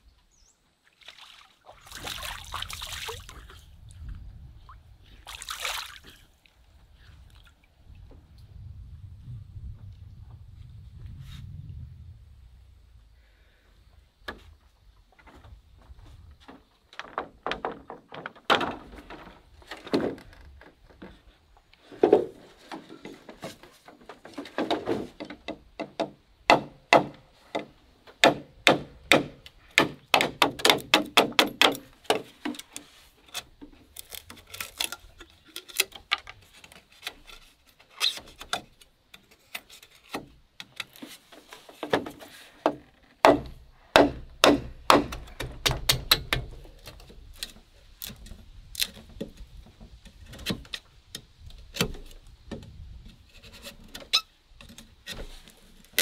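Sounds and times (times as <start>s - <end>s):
knife chopping bamboo: 43.2s - 46.1s.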